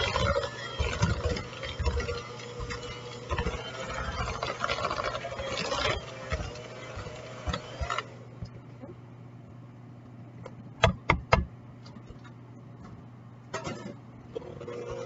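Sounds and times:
beaters scraping and knocking bowl: 0:00.0 - 0:08.1
electric hand mixer running: 0:00.0 - 0:08.3.

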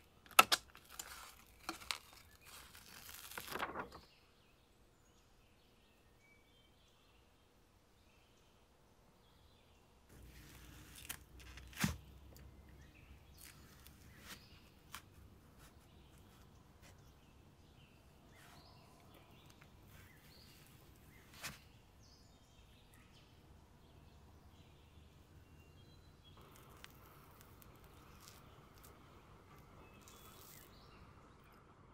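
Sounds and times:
knife cracking frozen wafer: 0:00.2 - 0:03.5, 0:26.4 - 0:30.8.

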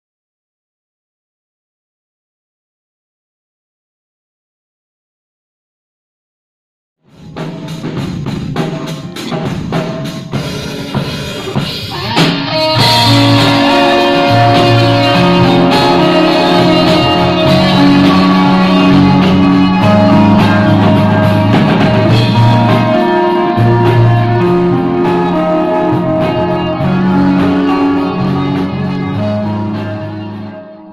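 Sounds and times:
drum kit: 0:07.0 - 0:30.9
bass guitar: 0:07.1 - 0:30.9
electric guitars: 0:07.1 - 0:30.9.

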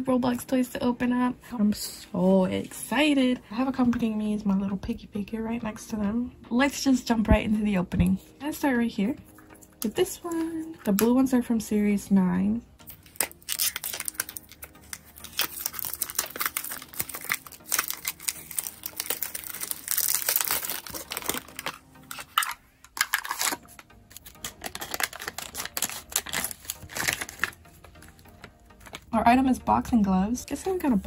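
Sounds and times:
plastic packaging crinkling and tearing: 0:12.8 - 0:29.1
scissors cutting plastic bag: 0:12.9 - 0:27.6.

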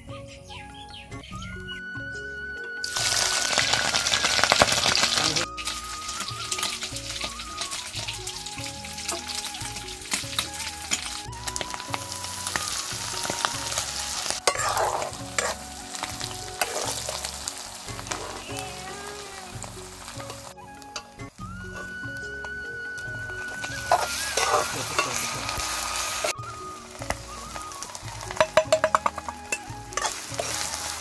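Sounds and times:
meat sizzling in hot oil: 0:02.8 - 0:22.1, 0:22.9 - 0:31.0
ladle scraping pan: 0:13.3 - 0:18.6, 0:23.4 - 0:26.4, 0:28.2 - 0:31.0.

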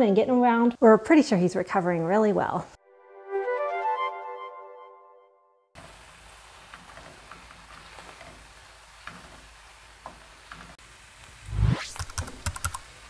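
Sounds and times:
onions sizzling in a pan: 0:05.8 - 0:11.5.

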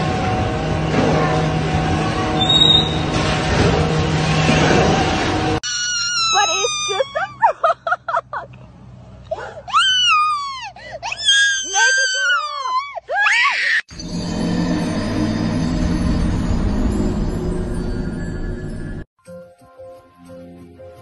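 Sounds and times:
child screaming and wailing: 0:05.6 - 0:07.4, 0:09.4 - 0:13.9.

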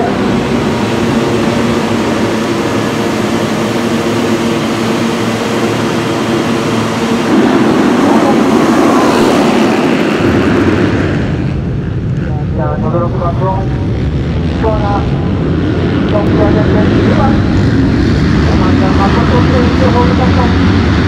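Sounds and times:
motocross bike engines running: 0:00.0 - 0:21.0.

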